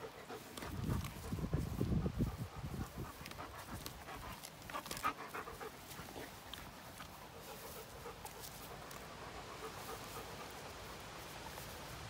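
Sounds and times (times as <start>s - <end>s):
dogs panting: 0.0s - 12.0s.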